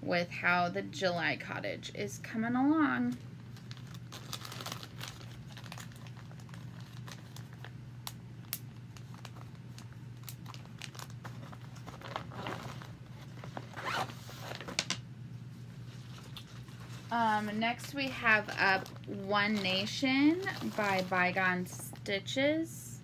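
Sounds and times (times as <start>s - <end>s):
packaging rustling and clicking: 3.4s - 15.0s.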